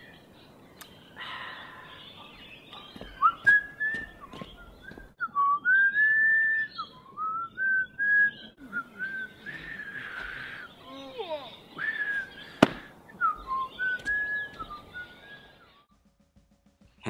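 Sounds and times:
man whistling a tune: 3.2 - 10.4, 11.8 - 12.4, 13.2 - 15.6.

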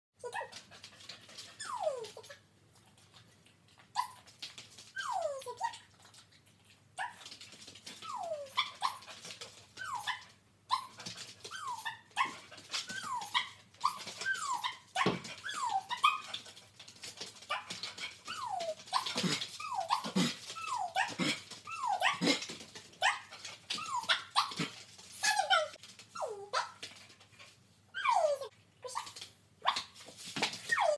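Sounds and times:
dog whining: 1.6 - 2.4, 4.9 - 5.8, 9.8 - 16.4, 18.3 - 22.4, 28.0 - 29.1, 30.6 - 30.9.

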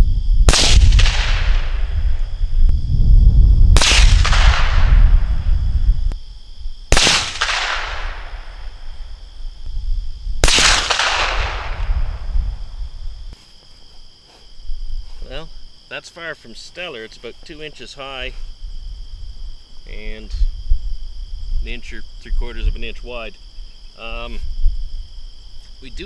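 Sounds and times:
low wind rumble: 0.0 - 13.4, 14.6 - 15.9, 17.6 - 26.0
insects chirring: 0.0 - 26.0
rifle shots with echo: 0.5 - 2.1, 3.8 - 5.2, 6.9 - 8.9, 10.4 - 12.3.

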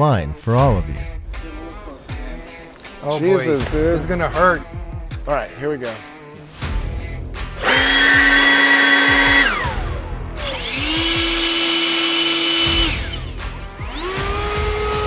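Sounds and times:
leaf blower whine: 7.6 - 15.0.

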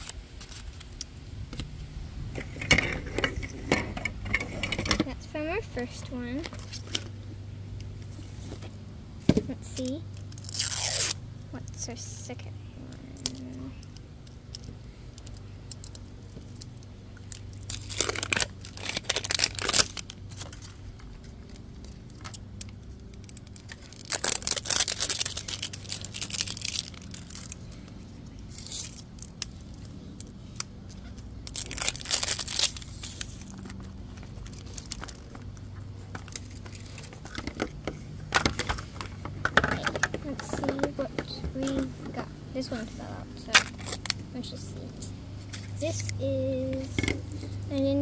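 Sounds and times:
plastic film tearing and peeling: 0.0 - 1.0, 9.8 - 11.2, 16.2 - 37.4, 43.5 - 44.2.

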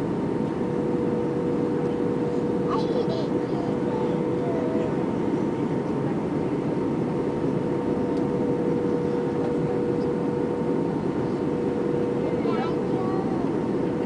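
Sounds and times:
aircraft cabin engine roar: 0.0 - 14.0
constant droning hum: 0.0 - 14.0.

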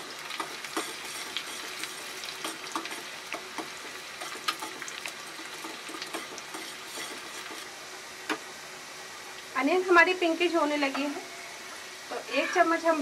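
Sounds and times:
onions sizzling in hot oil: 0.0 - 13.0
fork scraping metal pan: 6.1 - 7.6, 12.2 - 12.8.

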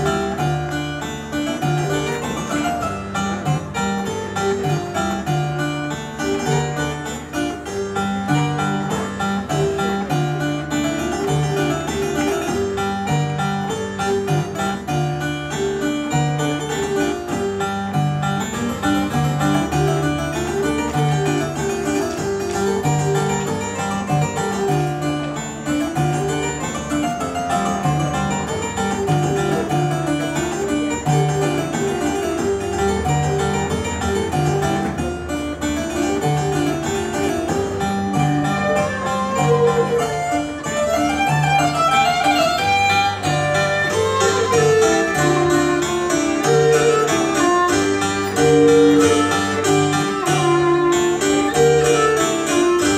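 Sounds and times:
bowed fiddle: 0.0 - 52.9
plucked keyboard running figures: 18.6 - 52.9.

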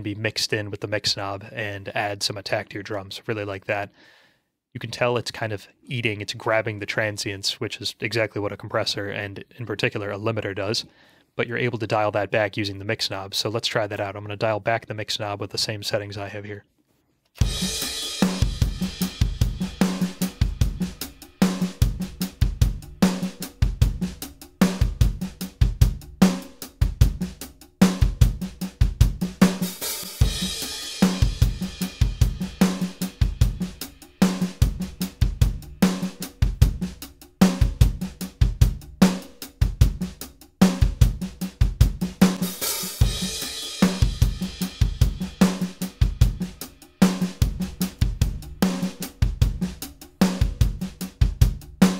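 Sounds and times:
rock drum groove: 17.4 - 51.9.

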